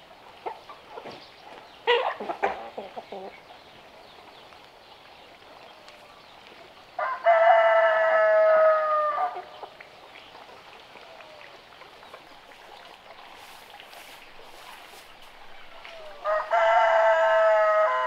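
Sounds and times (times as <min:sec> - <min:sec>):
faint background noise: 0:00.0 - 0:18.0
rooster crowing: 0:07.0 - 0:09.5, 0:15.9 - 0:18.0.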